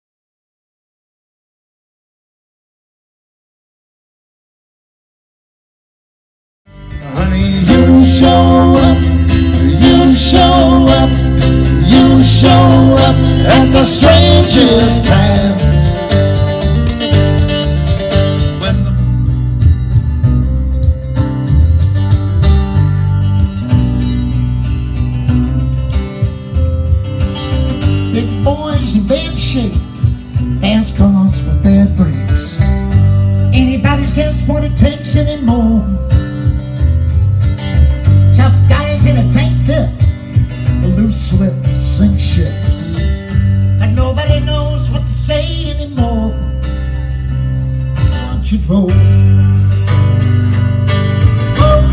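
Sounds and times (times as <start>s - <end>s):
bass guitar line: 6.7s - 51.9s
live band country song: 6.7s - 51.9s
man singing: 6.9s - 16.7s, 18.4s - 19.2s, 28.0s - 32.7s, 33.5s - 36.2s, 38.3s - 40.1s, 40.7s - 46.7s, 48.0s - 49.5s, 51.5s - 51.9s.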